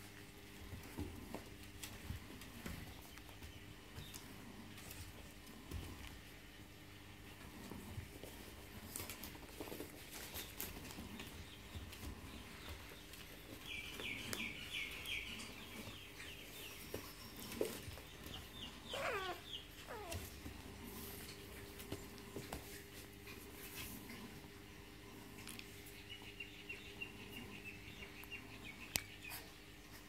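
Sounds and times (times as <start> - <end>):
puppies scrabbling on bedding: 0.0 - 26.1
puppy high squeaks: 18.9 - 20.2
puppy falling whines: 18.9 - 20.3.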